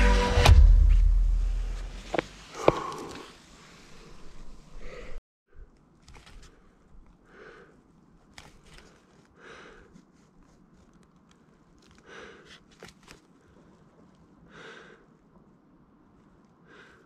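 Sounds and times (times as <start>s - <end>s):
person breathing heavily: 2.5s - 5.7s, 6.4s - 10.6s, 11.8s - 15.3s, 16.6s - 17.0s.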